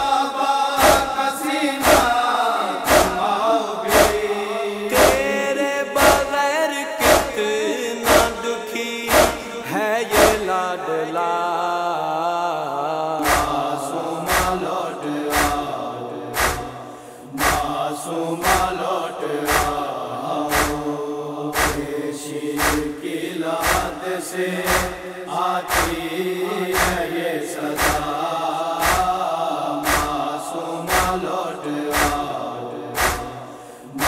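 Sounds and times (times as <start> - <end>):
men chanting: 0.0 - 34.0
chest-beating slaps: 0.8 - 1.1, 1.8 - 2.1, 2.9 - 3.2, 3.9 - 4.2, 4.9 - 5.4, 6.0 - 6.3, 7.0 - 7.4, 8.0 - 8.4, 9.1 - 9.5, 10.1 - 10.5, 13.2 - 13.6, 14.3 - 14.6, 15.3 - 15.7, 16.4 - 16.8, 17.4 - 17.7, 18.4 - 18.7, 19.5 - 19.8, 20.5 - 20.8, 21.6 - 21.9, 22.6 - 23.0, 23.6 - 24.0, 24.7 - 25.0, 25.7 - 26.0, 26.8 - 27.0, 27.8 - 28.1, 28.8 - 29.1, 29.8 - 30.2, 30.9 - 31.2, 31.9 - 32.2, 33.0 - 33.3.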